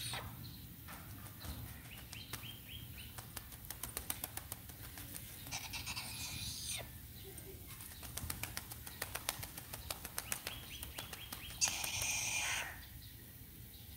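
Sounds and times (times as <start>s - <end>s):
bird fluttering wet wings: 1.2s - 6.1s, 7.7s - 12.4s.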